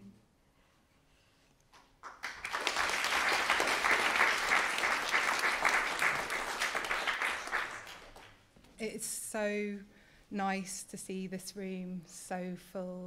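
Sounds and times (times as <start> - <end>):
audience applause: 2.0 - 8.4.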